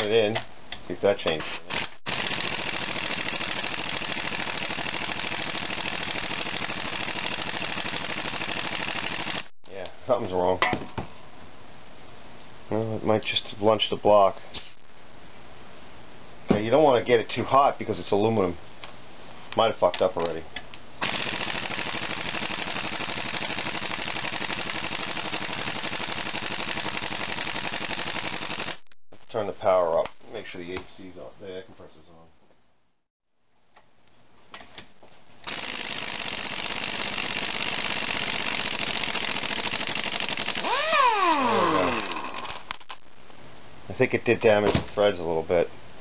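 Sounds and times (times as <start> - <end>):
pneumatic impact wrench hammering: 21.0 - 28.8, 35.4 - 42.6.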